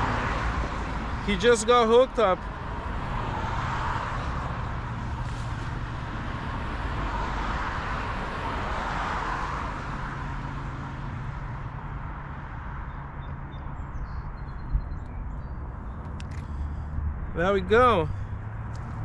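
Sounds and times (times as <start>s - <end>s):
low traffic rumble: 0.0s - 19.0s
car passing by: 2.0s - 11.7s.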